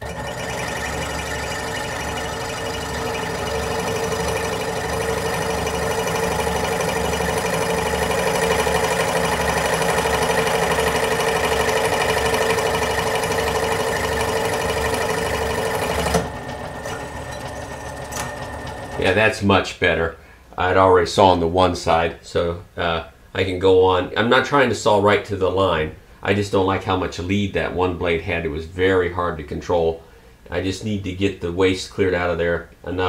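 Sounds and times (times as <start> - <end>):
scroll saw cutting metal: 0.0 - 19.2.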